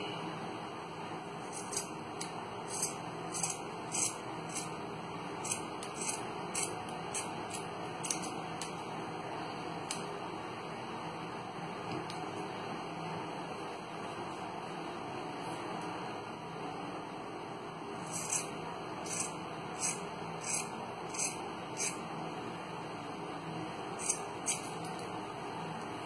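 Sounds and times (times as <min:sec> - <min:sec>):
scissors snipping fabric: 0:01.5 - 0:04.7, 0:05.4 - 0:08.7, 0:24.0 - 0:25.0.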